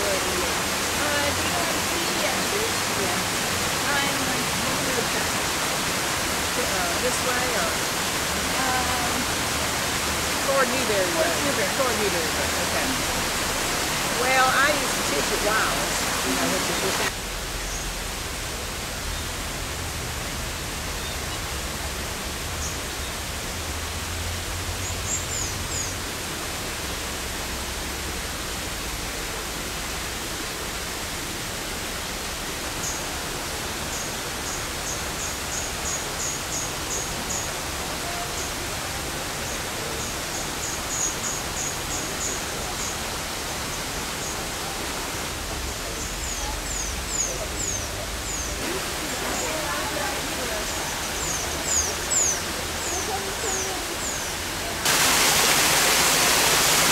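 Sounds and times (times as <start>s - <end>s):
falling water rushing: 0.0s - 56.9s
small birds chirping: 45.7s - 56.7s.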